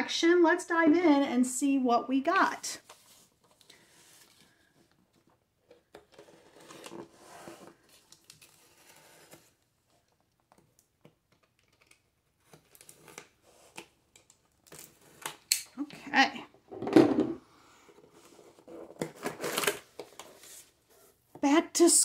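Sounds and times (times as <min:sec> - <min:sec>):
box cutter scraping through tape: 0:08.5 - 0:09.6.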